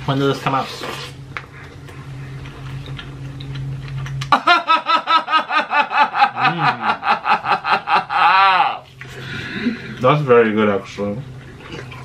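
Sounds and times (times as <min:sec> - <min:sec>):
man laughing loudly: 0:04.3 - 0:08.9.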